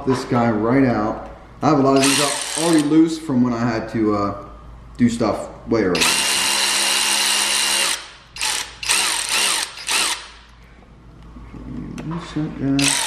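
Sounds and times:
cordless power tool spinning: 2.0 - 2.9, 6.0 - 10.4, 12.8 - 13.0.

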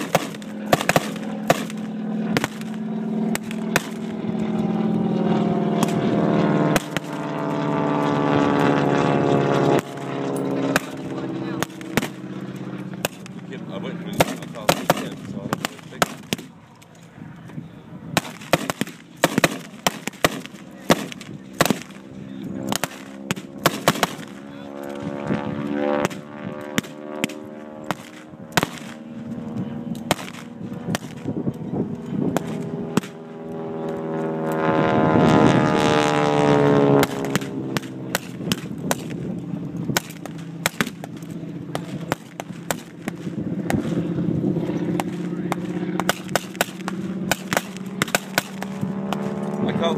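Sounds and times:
blank gunfire cracks: 0.0 - 2.8
vehicle engine revving: 0.0 - 16.5, 18.2 - 49.9.

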